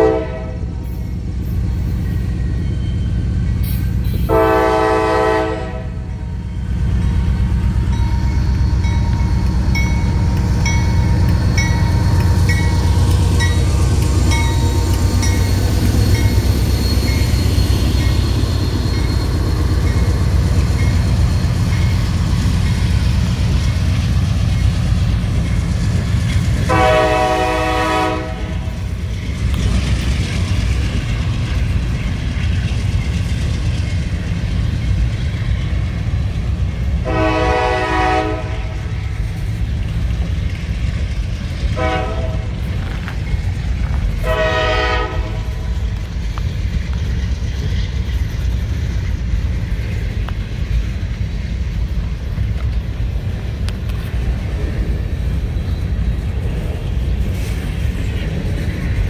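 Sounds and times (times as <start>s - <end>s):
train horn blasts: 0.0s - 0.8s, 4.2s - 6.2s, 26.6s - 28.9s, 37.0s - 39.0s, 41.7s - 42.7s, 44.2s - 45.7s
freight train rumbling past: 0.0s - 59.0s
cars rolling on rails: 0.7s - 59.0s.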